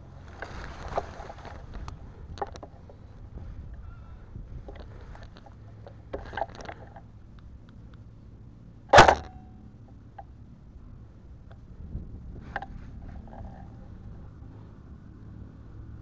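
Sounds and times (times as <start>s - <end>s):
faint clicks and rustles: 0.0s - 8.1s, 12.3s - 14.8s
airsoft gun shot: 8.9s - 9.4s.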